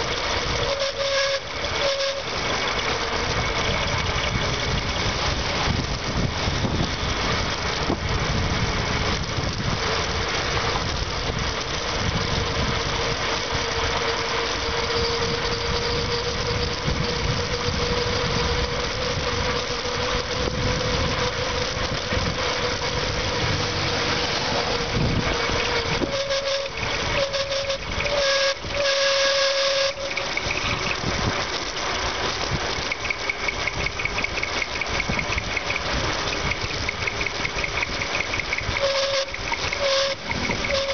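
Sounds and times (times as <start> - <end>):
broken squeal: 0.0 - 5.7, 12.2 - 31.1, 37.4 - 40.9
steady high whistle: 0.6 - 2.3, 25.9 - 30.2, 38.8 - 40.9
wind rushing on microphone: 2.4 - 28.8, 30.4 - 31.5.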